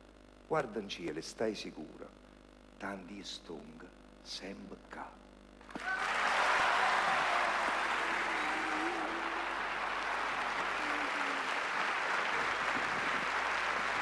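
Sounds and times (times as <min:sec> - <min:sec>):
audience applauding: 0:05.7 - 0:14.0.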